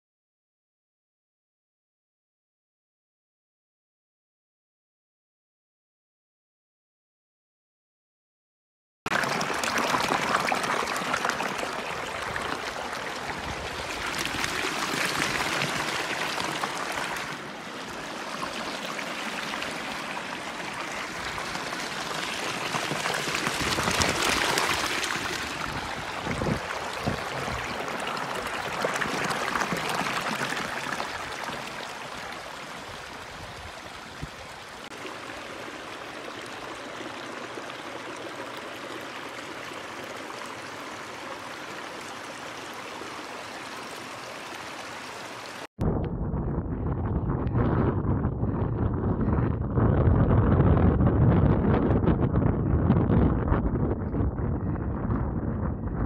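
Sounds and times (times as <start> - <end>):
stream splashing over rocks: 9.1 - 45.7.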